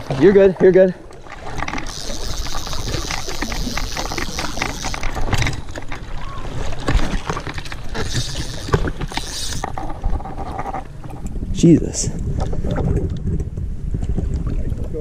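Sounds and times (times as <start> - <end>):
water sloshing: 0.0 - 11.4.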